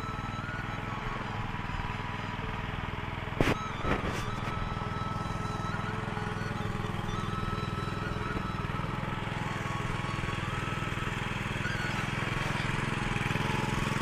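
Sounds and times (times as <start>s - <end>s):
tiller engine running: 0.0s - 14.0s.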